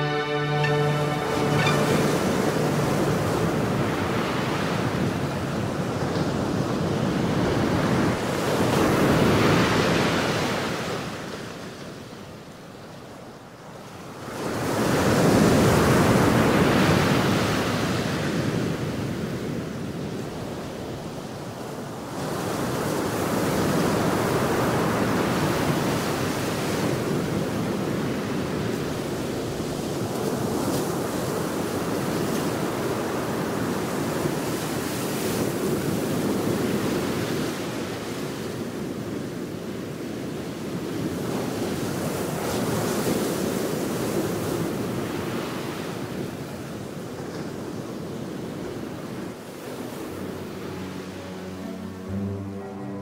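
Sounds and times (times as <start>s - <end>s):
surf: 0.0s - 4.8s.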